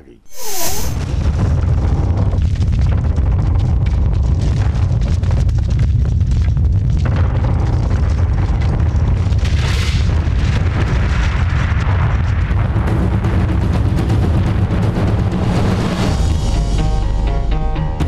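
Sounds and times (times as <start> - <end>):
hissing swell: 0.2 - 1.0
deep booming rumble: 1.0 - 18.0.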